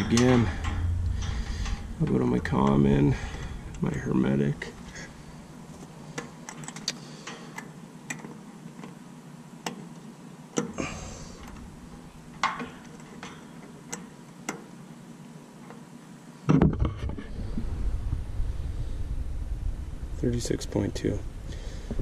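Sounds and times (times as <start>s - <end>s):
loud low rumble: 0.0s - 5.7s, 17.3s - 22.0s
low hum: 0.0s - 6.7s, 10.8s - 12.9s, 16.8s - 22.0s.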